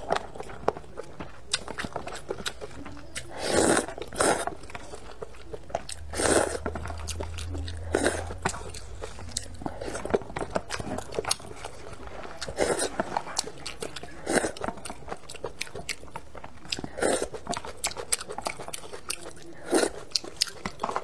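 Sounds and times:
wet chewing and smacking: 0.0 - 21.0
person slurping noodles: 3.2 - 5.1, 5.9 - 10.2, 12.4 - 13.5, 14.2 - 14.6, 16.8 - 17.4, 19.6 - 20.0.

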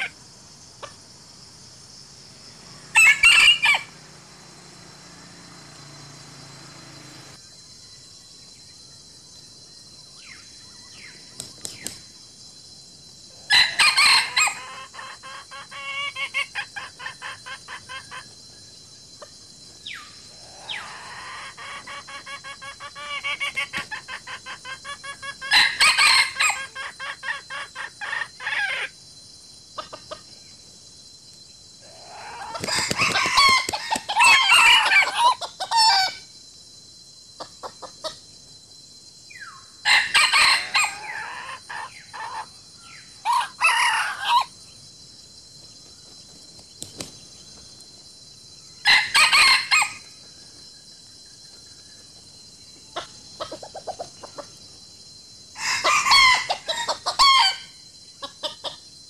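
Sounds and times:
steady high-pitched buzz: 0.6 - 8.0
rooster crowing: 2.7 - 7.4, 13.5 - 16.2, 25.3 - 26.7, 32.0 - 36.2, 39.8 - 42.5, 43.2 - 44.5, 48.8 - 50.1, 55.6 - 57.7
chickens clucking: 20.6 - 25.6, 53.0 - 54.6.

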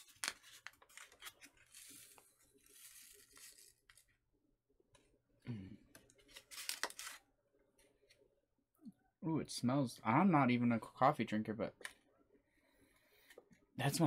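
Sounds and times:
packet tearing: 6.2 - 7.2.

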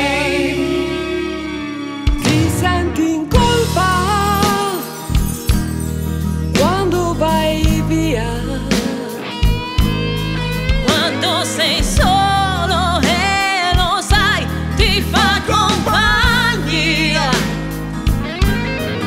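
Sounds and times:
woman singing: 0.0 - 5.1, 6.6 - 9.7, 10.8 - 17.6
live band playing: 0.0 - 19.0.

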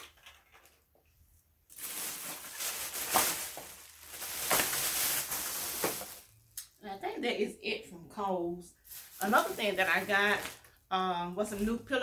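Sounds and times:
plastic bags rustling: 1.6 - 6.6, 8.8 - 10.8.

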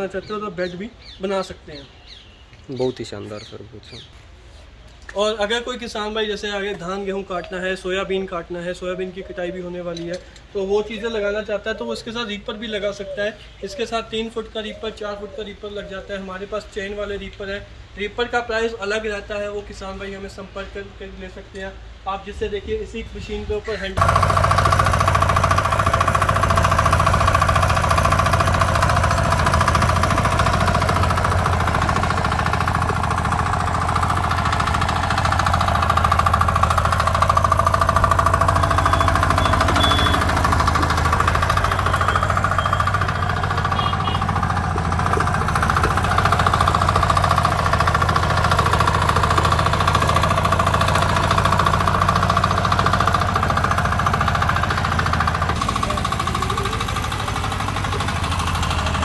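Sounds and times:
small engine running steadily: 24.0 - 59.0.

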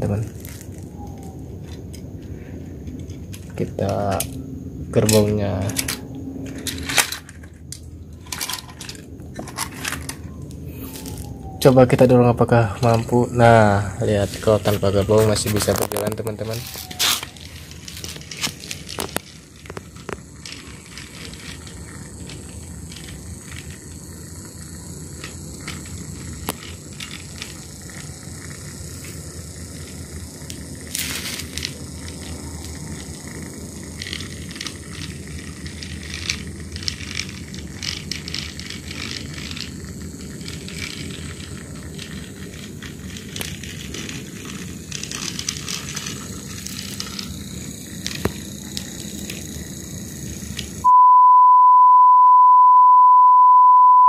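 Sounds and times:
wheels clicking on track: 0.0 - 50.8
toy train motor humming: 0.0 - 50.9
steady test-tone beep: 50.8 - 54.0.

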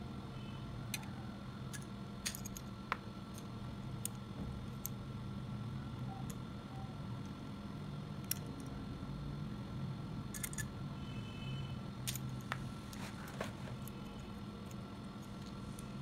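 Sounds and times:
steady low hum: 0.0 - 16.0
small metallic clicks and clinks: 1.7 - 2.7, 8.2 - 8.8, 10.3 - 10.8, 12.0 - 13.0.

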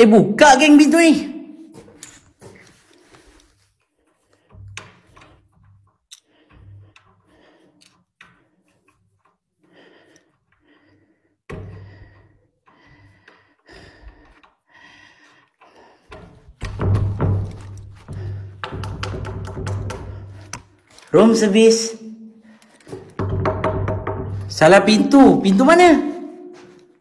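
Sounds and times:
knocks and scrapes on wooden door: 16.1 - 20.6, 22.9 - 25.0.

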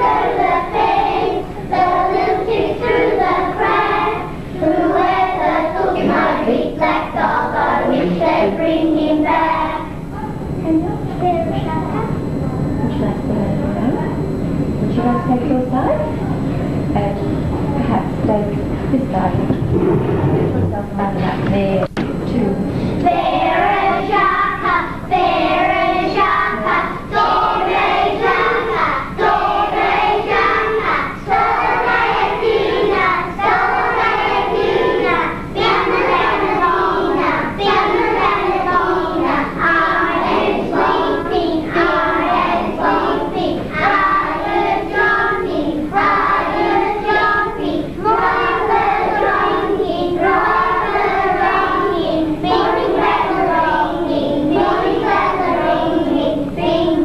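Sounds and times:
children singing together: 0.0 - 10.3, 22.9 - 57.0.

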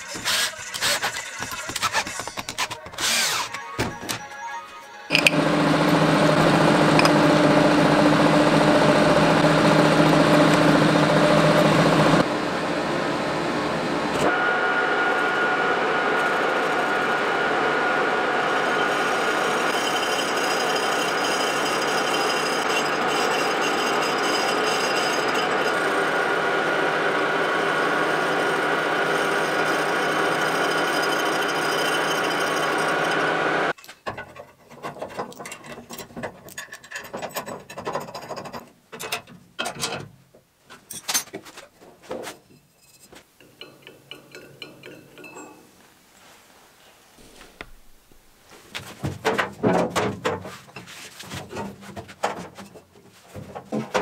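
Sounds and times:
metal lathe whirring: 0.0 - 3.6, 5.1 - 33.7
metal parts knocking and scraping: 0.0 - 4.2, 5.1 - 5.4, 33.8 - 41.6, 42.3 - 45.6.

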